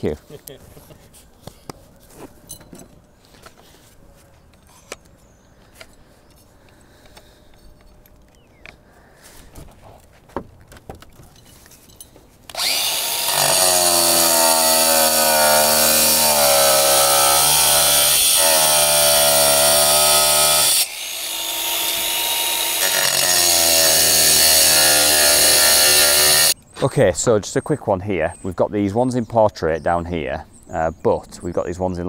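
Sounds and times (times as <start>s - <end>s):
power tool cutting slate: 12.5s - 26.6s.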